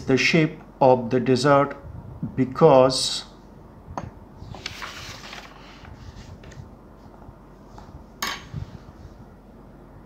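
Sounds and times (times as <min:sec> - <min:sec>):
paper page rustling: 0:04.4 - 0:06.7.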